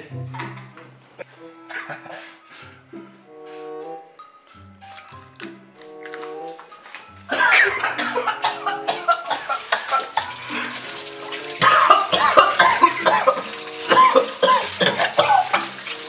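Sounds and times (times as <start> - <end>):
background music with held notes: 0.0 - 16.0
man coughing and gagging: 1.7 - 2.3, 7.3 - 10.4, 11.6 - 15.6
water running from tap: 9.2 - 16.0.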